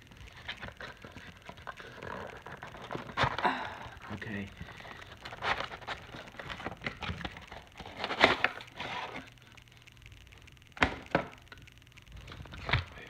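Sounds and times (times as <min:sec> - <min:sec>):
cardboard packaging crackling: 0:00.0 - 0:09.9.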